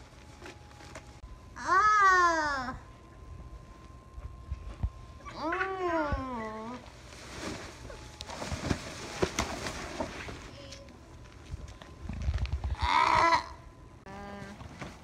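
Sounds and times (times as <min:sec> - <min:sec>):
rustling and scraping: 0:00.0 - 0:01.2, 0:06.4 - 0:12.8
animal-like cry: 0:12.7 - 0:14.3.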